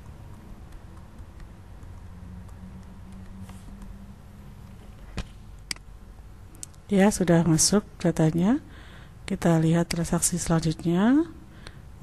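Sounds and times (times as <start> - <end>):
keyboard and mouse clicks: 0.0 - 4.0
low steady hum: 0.0 - 12.0.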